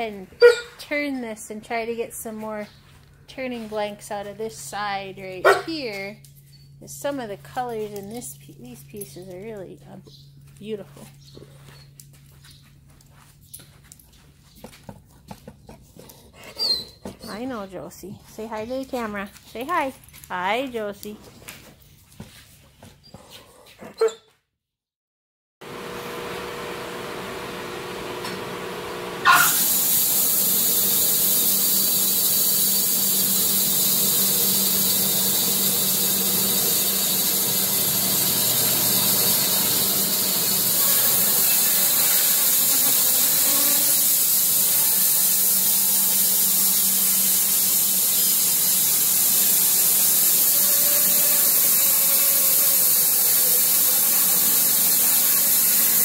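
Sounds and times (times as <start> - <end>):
band sawmill running: 25.6 - 56.0.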